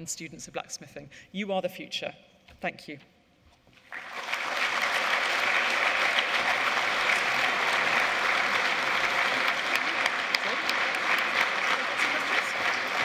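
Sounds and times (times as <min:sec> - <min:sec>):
audience applauding: 0:03.8 - 0:13.0.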